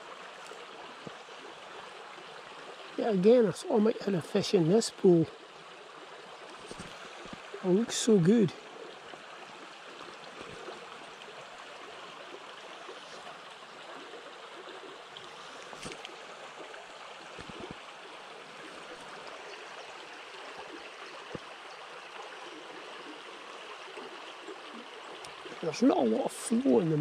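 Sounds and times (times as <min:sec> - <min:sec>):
water rushing over stones: 0:00.0 - 0:05.4, 0:06.2 - 0:27.0
faint clicks: 0:15.2 - 0:16.2.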